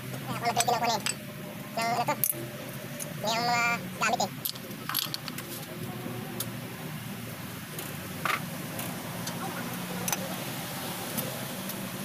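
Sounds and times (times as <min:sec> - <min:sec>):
steady low hum: 0:00.0 - 0:12.0
metal clicks and clinks of tools: 0:04.4 - 0:05.4.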